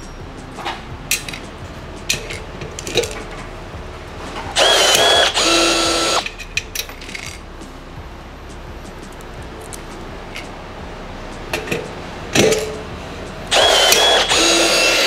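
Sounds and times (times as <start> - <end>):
rivet tool motor: 4.4 - 6.4, 13.5 - 15.0
sharp clicks: 4.4 - 7.8, 13.5 - 15.0.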